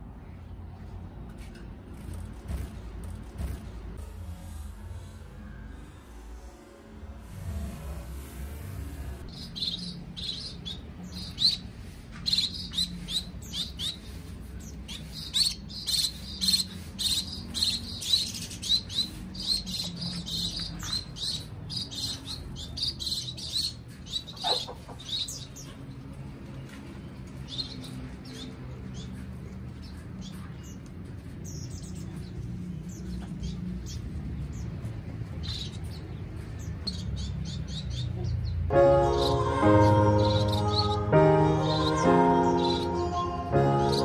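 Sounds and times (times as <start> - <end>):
finches chirping: 9.3 - 25.7.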